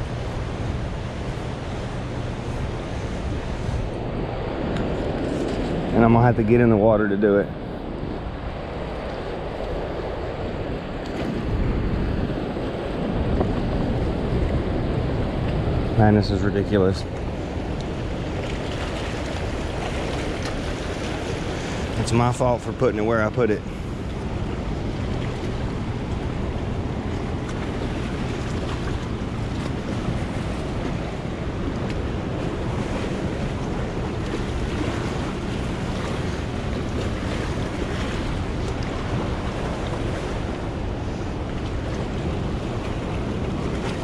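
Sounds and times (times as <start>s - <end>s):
wind noise on microphone: 0.0s - 22.2s
rushing river water: 0.0s - 44.0s.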